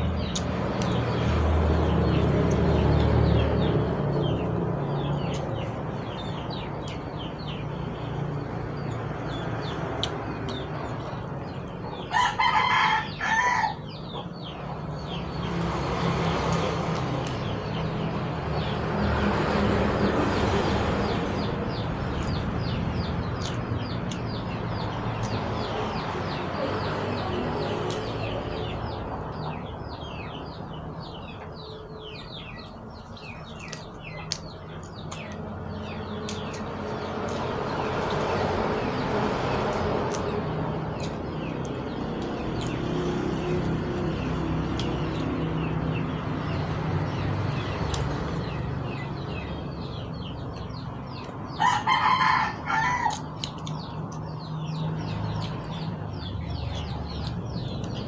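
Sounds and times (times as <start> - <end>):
rooster crowing: 12.1 - 13.8, 51.6 - 53.3.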